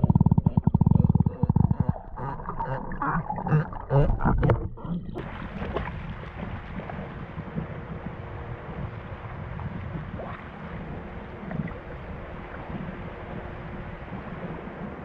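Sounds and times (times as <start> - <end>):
sea lions calling underwater: 0.0 - 15.0
hiss of shallow water: 5.2 - 15.0.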